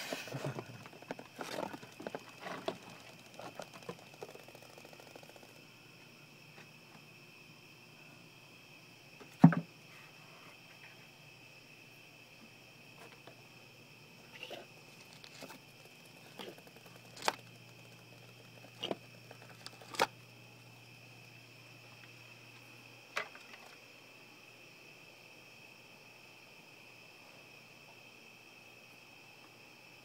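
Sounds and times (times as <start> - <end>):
faint high-pitched whine: 0.0 - 30.0.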